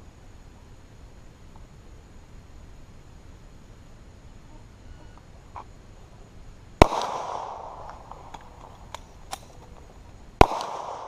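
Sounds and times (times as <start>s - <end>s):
pistol shots with echo: 6.8s - 8.6s, 10.4s - 11.0s.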